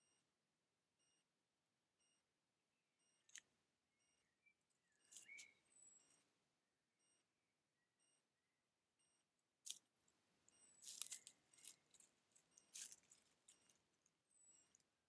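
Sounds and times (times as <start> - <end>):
scratchy clicks and rustles: 10.8 - 14.1.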